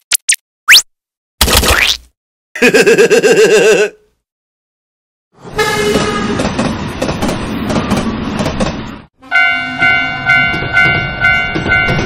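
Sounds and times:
train passing: 5.4 - 12.0
railroad crossing warning bell: 9.2 - 12.0.

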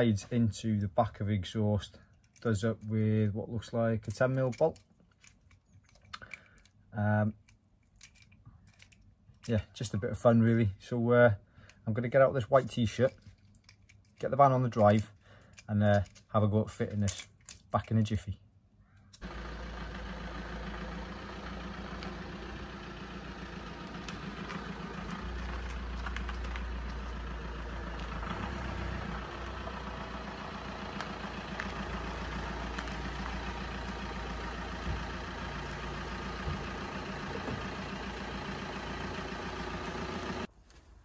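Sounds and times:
van engine running at low revs: 19.2 - 40.5.

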